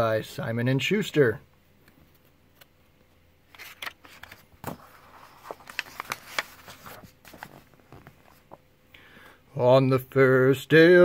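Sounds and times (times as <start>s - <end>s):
paper rustling and crackling: 3.5s - 8.6s.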